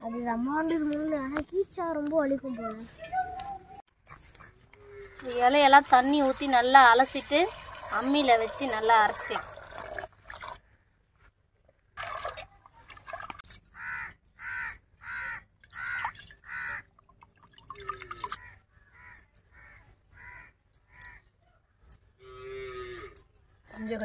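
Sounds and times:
water sloshing in a steel pot: 5.8s - 10.6s
crow cawing: 13.7s - 16.9s, 18.4s - 21.2s.

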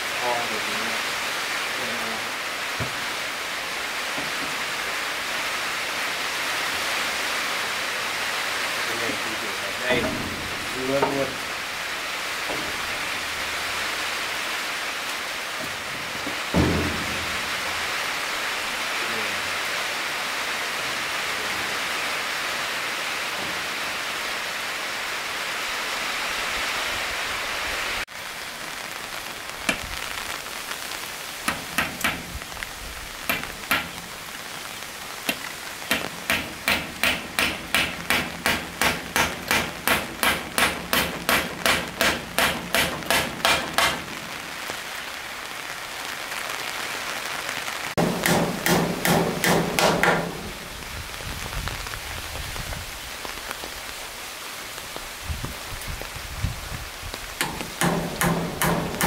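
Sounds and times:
steady hiss: 0.0s - 59.0s
hammer driving nails into wood: 31.5s - 32.3s, 33.3s - 33.9s, 35.3s - 44.1s, 48.0s - 50.4s, 57.4s - 59.0s.

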